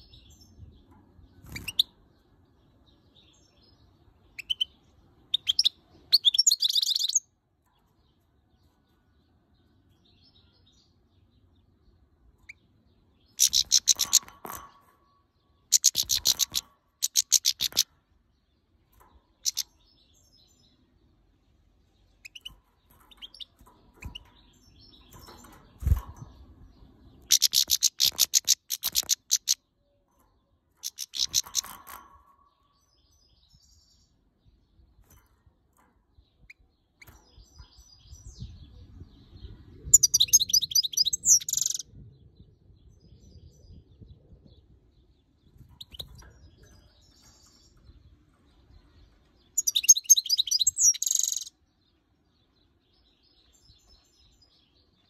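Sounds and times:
goldfinch sharp high calls: 0:13.4 - 0:14.6, 0:15.7 - 0:17.8, 0:19.4 - 0:19.6, 0:30.8 - 0:32.0.

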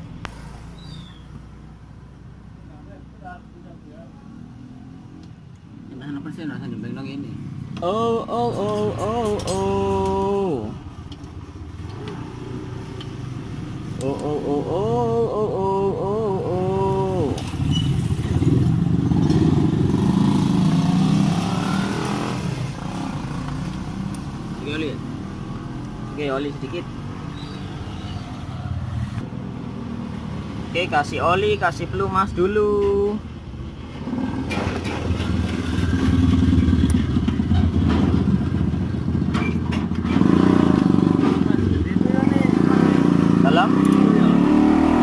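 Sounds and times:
motorcycle engine passing by: 0:16.4 - 0:26.2, 0:33.9 - 0:45.0
motorcycle engine running: 0:35.1 - 0:39.4.

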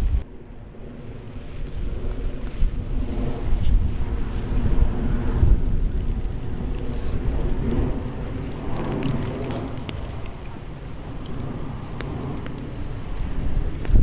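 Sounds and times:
steady rain: 0:00.0 - 0:14.0
wind rumbling on microphones: 0:00.0 - 0:14.0
sharp raindrop ticks: 0:05.2 - 0:14.0.

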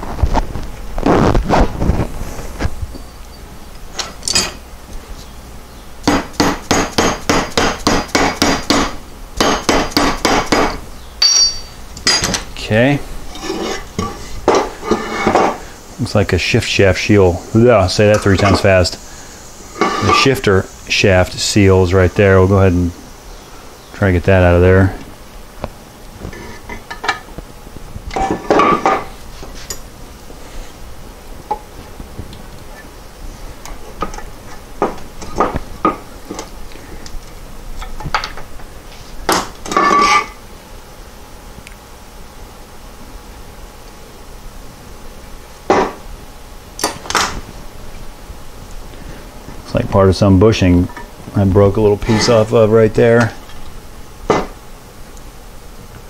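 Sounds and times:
metal tool clinking and scraping: 0:04.0 - 0:04.6, 0:11.2 - 0:12.4, 0:19.7 - 0:20.3, 0:39.7 - 0:40.4
hammer striking metal: 0:06.1 - 0:12.4.

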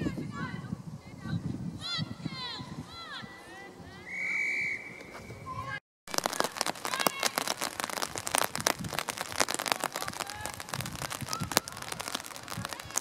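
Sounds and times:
distant shouts: 0:00.0 - 0:08.1, 0:09.6 - 0:13.0
dense crackling ticks: 0:06.1 - 0:13.0.

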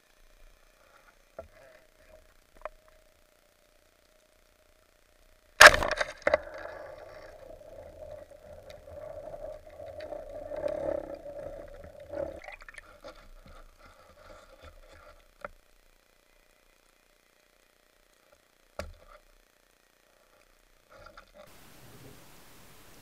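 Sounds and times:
noisy underwater hum: 0:00.0 - 0:23.0
speargun firing crack: 0:05.6 - 0:06.8.

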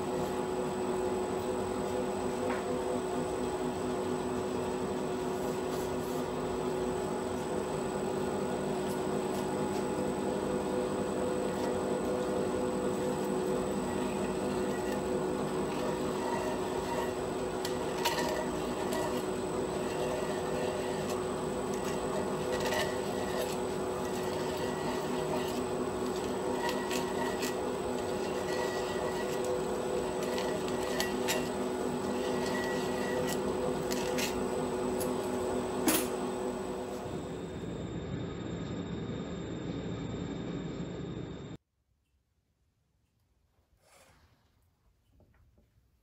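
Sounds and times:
workshop machine hum: 0:00.0 - 0:41.6
tool scraping metal: 0:11.2 - 0:36.2.

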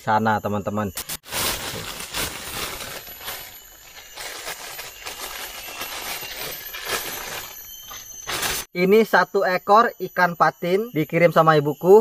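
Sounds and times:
plastic bag crinkling: 0:01.2 - 0:08.7.

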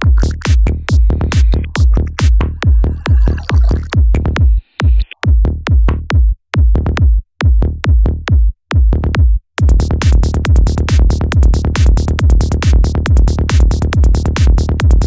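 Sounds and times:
deep bass: 0:00.0 - 0:04.6, 0:05.2 - 0:15.0
electronic dance music: 0:00.0 - 0:05.2
heavy kick drum beat: 0:00.0 - 0:15.0.

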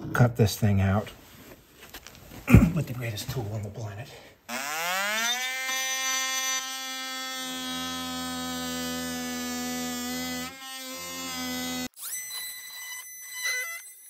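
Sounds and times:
oscillating multi-tool cutting wood: 0:04.5 - 0:14.0.

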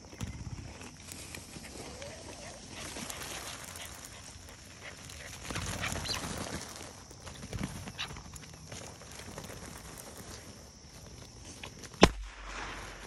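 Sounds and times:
gunshot: 0:12.0 - 0:13.0.

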